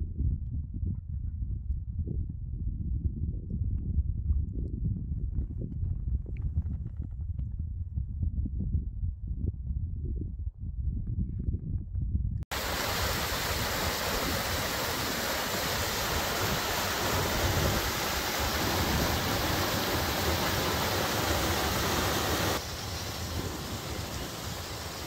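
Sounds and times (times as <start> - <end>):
creek water rushing: 12.5 - 25.0.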